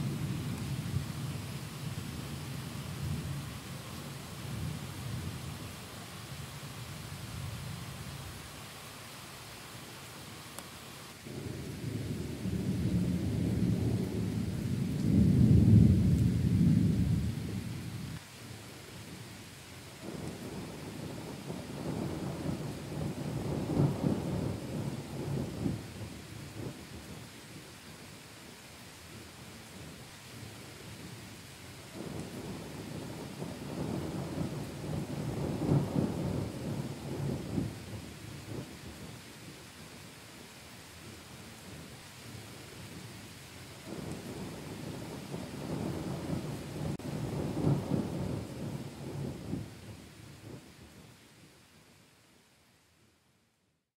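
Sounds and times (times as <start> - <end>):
steady rain: 0.0 - 53.9
rolling thunder: 11.3 - 17.9, 20.0 - 27.3, 32.0 - 39.2, 43.9 - 50.7.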